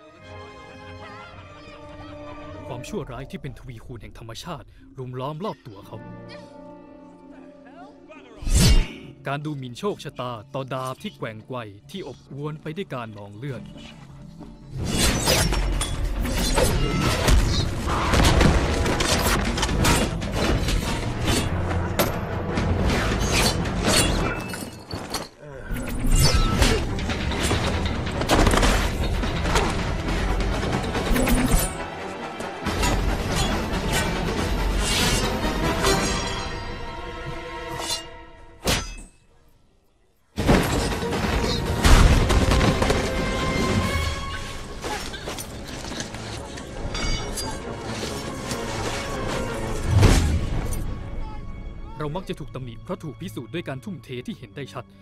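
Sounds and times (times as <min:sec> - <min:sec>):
film soundtrack music: 0:00.0 - 0:55.0
punches and knife strikes: 0:38.6 - 0:39.1.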